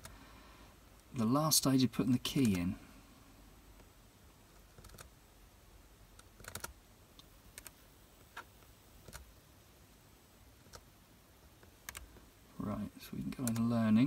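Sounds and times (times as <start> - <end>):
laptop keys clicking: 4.6 - 5.1, 6.2 - 6.8, 7.6 - 7.8, 8.4 - 9.3, 11.8 - 12.1, 13.4 - 13.7.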